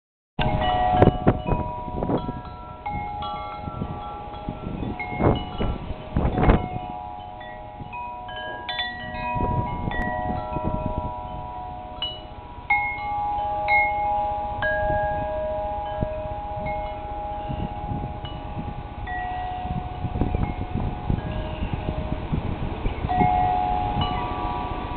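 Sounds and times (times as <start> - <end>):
metal wind chimes ringing: 0.4 - 24.9
wind buffeting microphone: 0.4 - 24.9.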